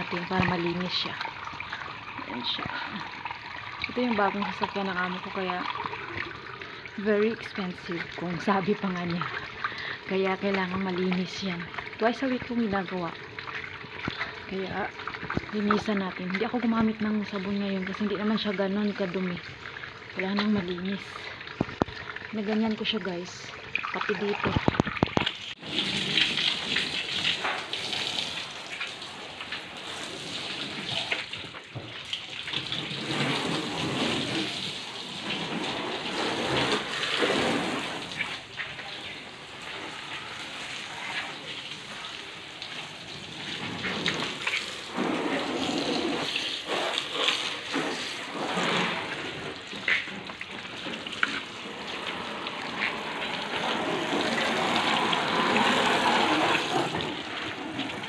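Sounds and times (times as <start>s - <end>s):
hose water spraying on car: 24.1s - 58.0s.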